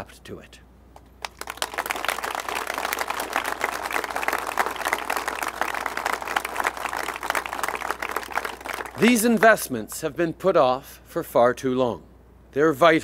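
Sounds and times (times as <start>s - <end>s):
crowd applauding: 1.2s - 9.6s.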